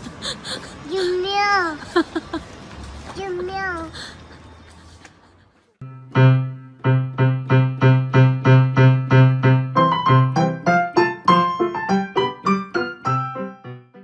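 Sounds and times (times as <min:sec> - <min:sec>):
higher keyboard melody notes: 0:05.8 - 0:14.0
keyboard tune of repeated notes: 0:05.8 - 0:14.0.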